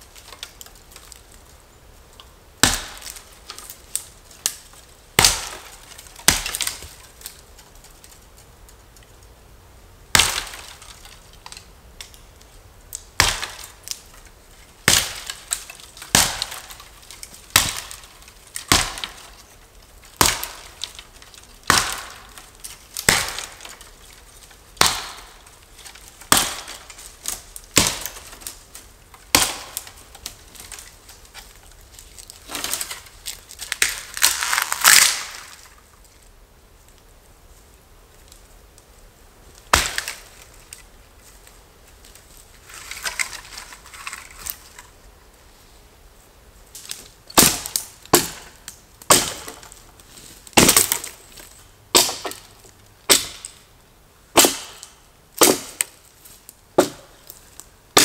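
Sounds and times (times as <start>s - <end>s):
hatchet chopping wood: 2.6s - 3.2s, 5.2s - 7.0s, 10.2s - 10.8s, 13.2s - 13.8s, 14.8s - 16.9s, 17.5s - 19.3s, 20.2s - 20.9s, 21.6s - 22.4s, 23.0s - 23.8s, 24.8s - 25.4s, 26.2s - 28.4s, 29.3s - 30.4s, 39.7s - 40.2s, 47.4s - 49.7s, 50.6s - 51.2s, 51.9s - 52.5s, 53.1s - 53.6s, 54.4s - 55.9s, 56.8s - 57.1s
tree trunk splintering: 2.6s - 8.2s, 10.1s - 11.7s, 13.0s - 35.8s, 39.7s - 40.8s, 46.8s - 53.6s, 54.4s - 56.0s.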